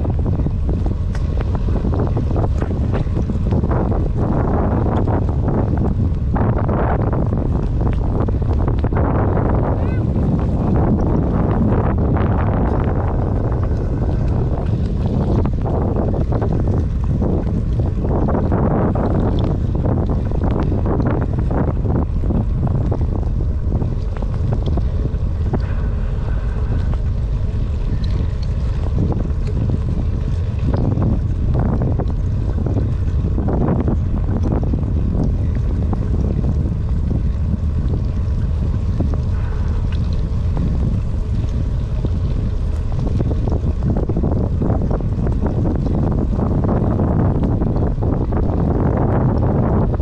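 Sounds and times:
wind buffeting microphone: 0.0s - 50.0s.

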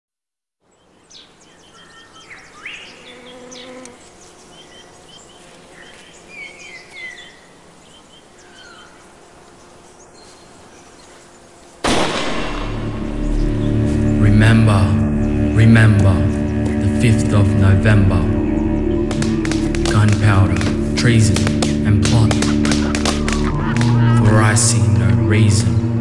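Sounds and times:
birds chirping and whistling: 0.7s - 24.2s
bee buzzing: 2.6s - 11.8s, 18.2s - 25.1s
loud burst of noise: 11.8s - 14.2s.

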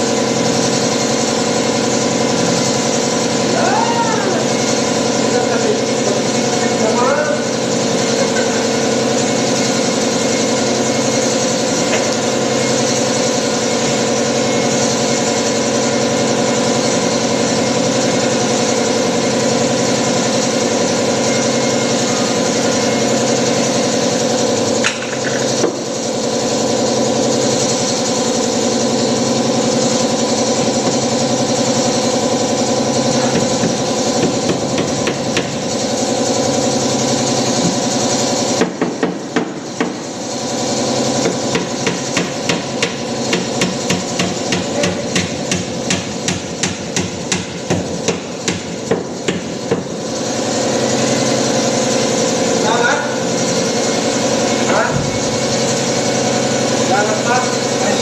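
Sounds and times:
motor droning: 0.0s - 38.5s.

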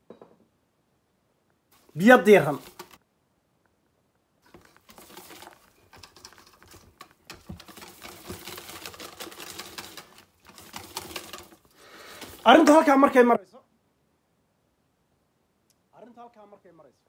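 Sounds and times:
whisk beating batter in metal bowl: 4.5s - 13.0s.

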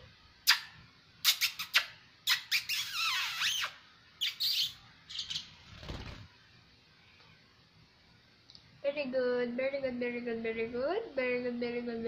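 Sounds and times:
parrot chirping and squawking: 0.5s - 5.6s.

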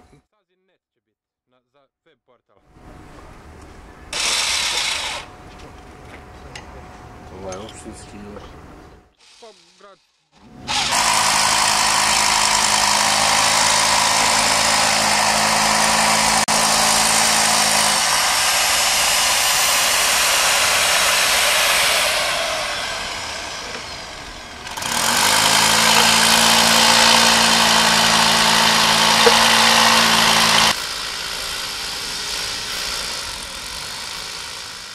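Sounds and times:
electric power tool running: 4.1s - 5.7s, 9.2s - 34.9s.

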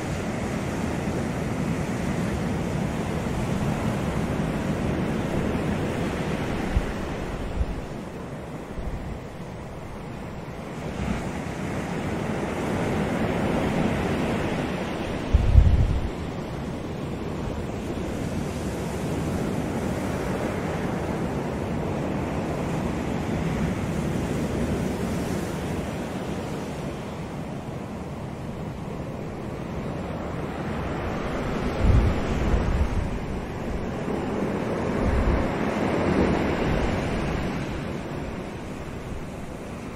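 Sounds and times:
wind on microphone: 0.0s - 27.4s, 28.6s - 39.9s
waves breaking over rocks: 29.2s - 39.9s.

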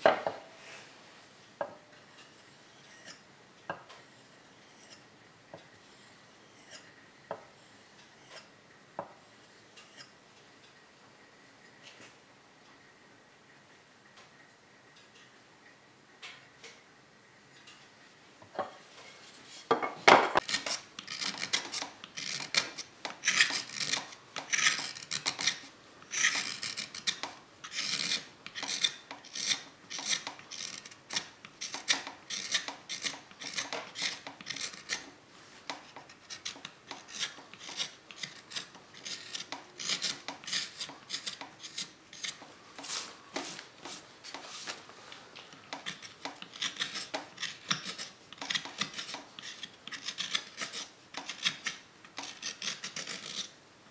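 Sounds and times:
carving tool scraping wood: 1.6s - 10.1s, 18.6s - 53.6s.

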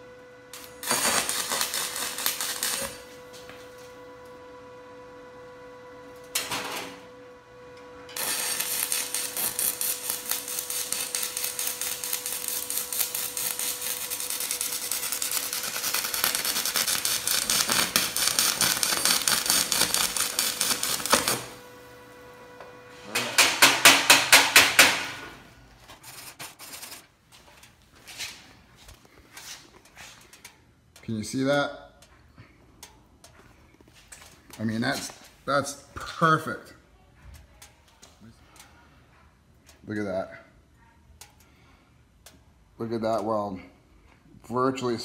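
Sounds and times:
arc welding crackle: 0.0s - 4.4s, 5.8s - 27.8s, 32.8s - 36.7s
rapid strikes on steel: 23.4s - 25.2s.

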